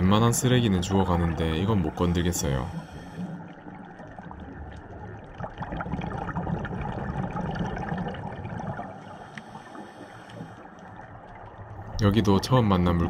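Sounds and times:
underwater gurgling hiss: 2.3 - 3.7, 8.7 - 10.8.

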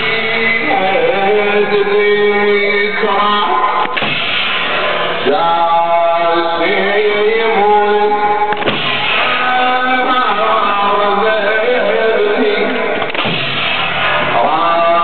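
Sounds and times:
man chanting a lament: 0.0 - 4.0, 5.2 - 8.5, 9.1 - 13.1, 14.2 - 15.0
sharp strikes: 3.8 - 5.4, 8.5 - 9.7, 13.0 - 15.0.

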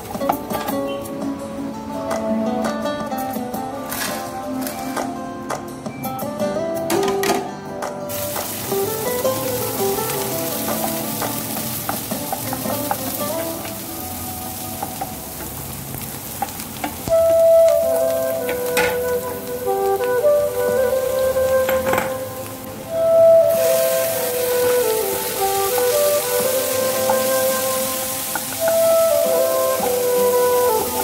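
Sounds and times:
instrumental background music: 0.0 - 31.0
onions sizzling in a frying pan: 8.1 - 31.0.

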